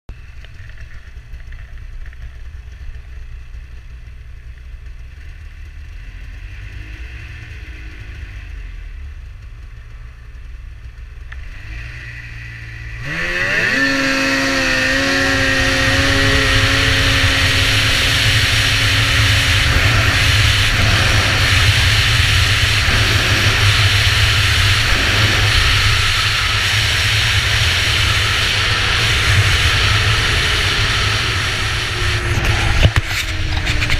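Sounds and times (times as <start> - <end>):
wind and track noise: 0.1 - 33.9
snowmobile engine revving: 11.3 - 33.9.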